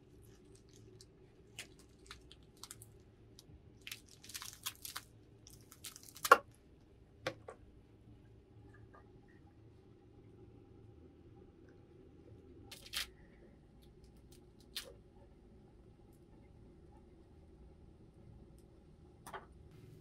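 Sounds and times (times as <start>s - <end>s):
small clicks and crunching: 0.1s - 6.6s, 12.7s - 13.2s, 13.8s - 15.0s.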